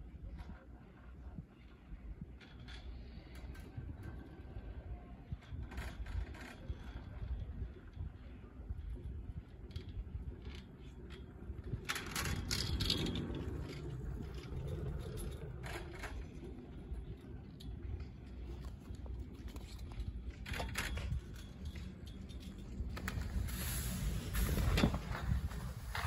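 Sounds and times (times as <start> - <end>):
chairlift low rumble: 0.0 - 26.0
chairlift clattering rattle: 10.6 - 16.9, 20.4 - 26.0.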